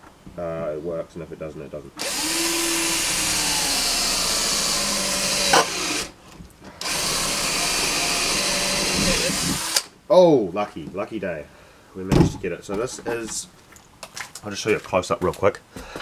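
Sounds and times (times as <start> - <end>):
power drill drilling metal: 2.0 - 6.1, 6.8 - 9.9.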